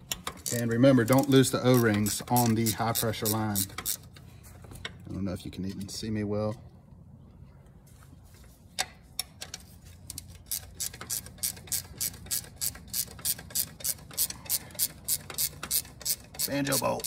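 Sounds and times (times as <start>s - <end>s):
ratchet wrench clicking: 0.1s - 4.2s, 10.1s - 17.0s.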